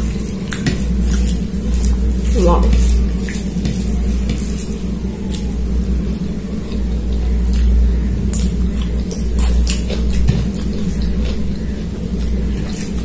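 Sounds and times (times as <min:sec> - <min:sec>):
fingers mixing food on plate: 0:00.0 - 0:07.6
steady low hum: 0:00.0 - 0:13.0
wet chewing: 0:00.0 - 0:13.0.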